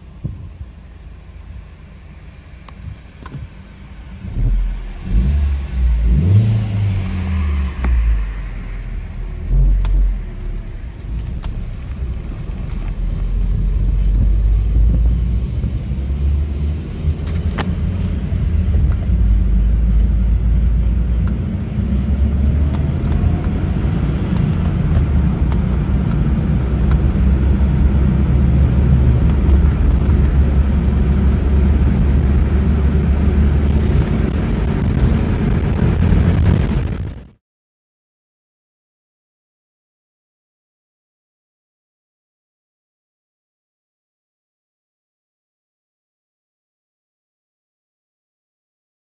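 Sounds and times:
car engine drone from cabin: 0.0s - 37.2s
road rumble: 0.0s - 37.4s.

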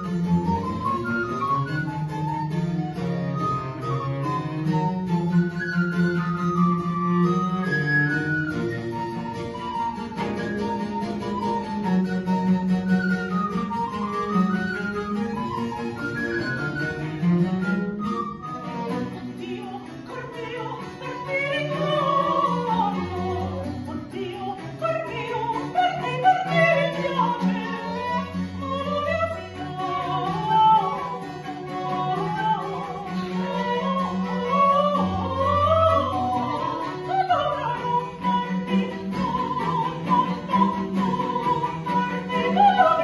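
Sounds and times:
baroque chamber ensemble: 0.0s - 43.0s
soprano singing with vibrato: 19.0s - 43.0s.

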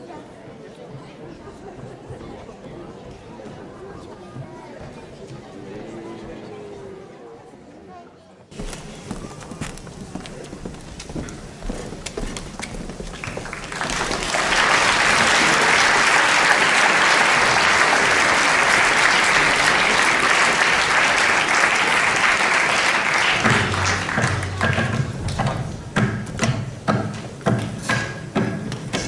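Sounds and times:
audience applauding: 12.1s - 25.5s.

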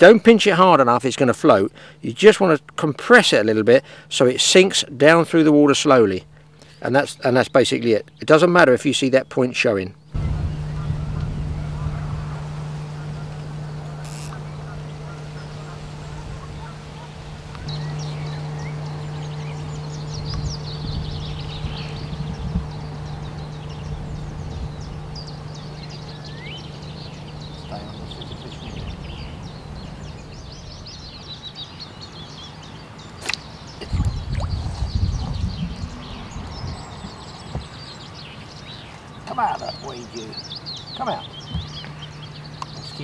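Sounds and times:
steady low hum: 0.0s - 43.0s
birds calling and chirping: 6.3s - 43.0s
sharp click: 33.2s - 33.5s
water splashing: 33.2s - 34.9s.

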